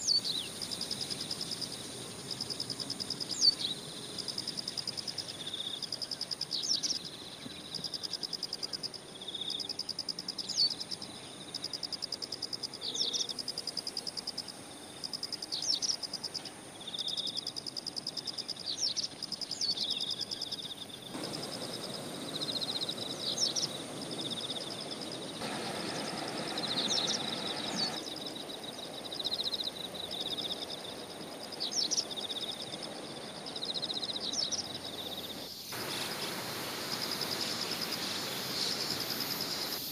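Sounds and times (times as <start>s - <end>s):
field insects chirping: 0.0s - 39.9s
rushing background noise: 21.2s - 29.1s.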